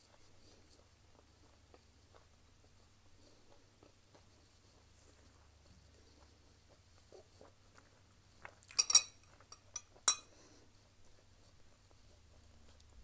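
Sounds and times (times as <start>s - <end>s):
spoon clinking against glass bowl: 8.7s - 10.3s.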